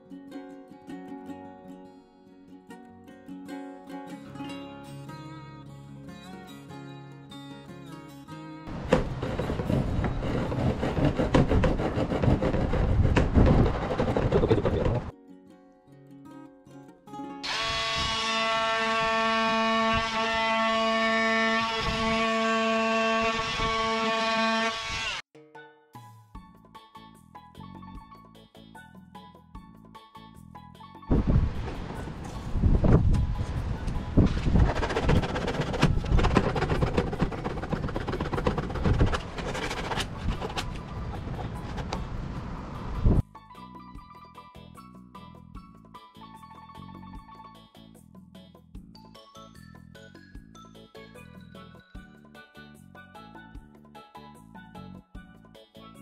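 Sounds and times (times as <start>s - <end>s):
hand saw cutting hard plastic: 8.7s - 15.1s, 34.4s - 42.0s.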